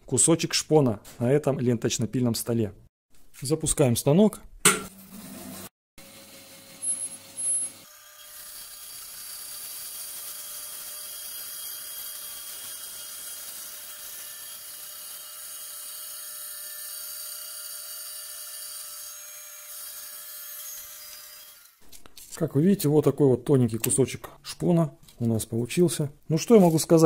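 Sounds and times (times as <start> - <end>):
bandsaw sawing wood: 5.2 - 21.8.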